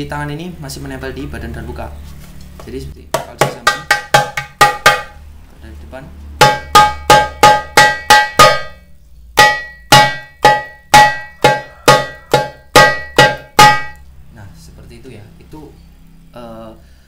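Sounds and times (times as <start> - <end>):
darbuka strikes near the rim: 3.2 - 5.2, 6.4 - 8.8, 9.4 - 14.0.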